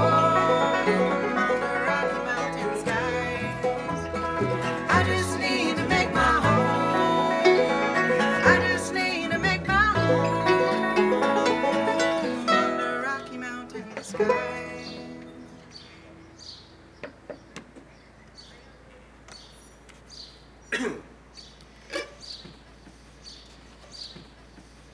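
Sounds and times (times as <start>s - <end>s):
bluegrass band playing: 0.0s - 16.6s.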